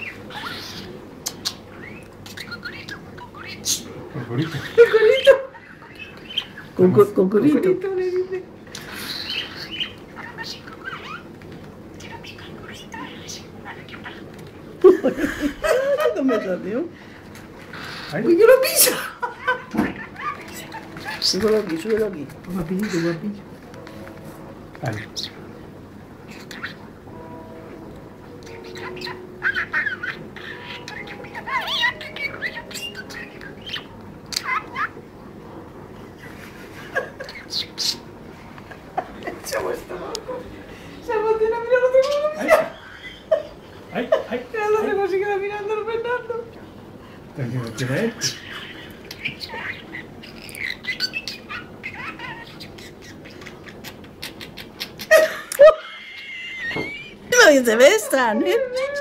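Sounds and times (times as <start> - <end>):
parrot chirping and squawking: 0.0 - 7.1, 8.6 - 14.8, 17.6 - 23.4, 26.2 - 27.2, 28.4 - 35.3, 36.2 - 38.5, 42.0 - 43.9, 47.8 - 59.0.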